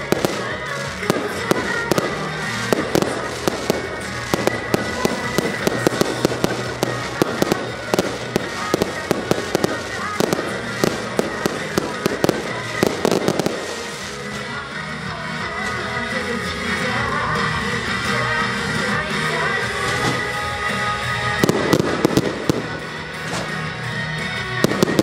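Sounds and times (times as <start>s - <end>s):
fireworks bangs and crackling pops: 0.0s - 14.7s, 19.8s - 23.7s, 24.5s - 25.0s
music soundtrack: 0.0s - 25.0s.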